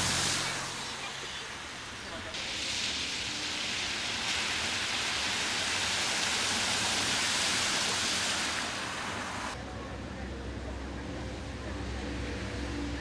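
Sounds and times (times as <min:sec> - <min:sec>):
car tyres spraying water: 0:00.0 - 0:09.6.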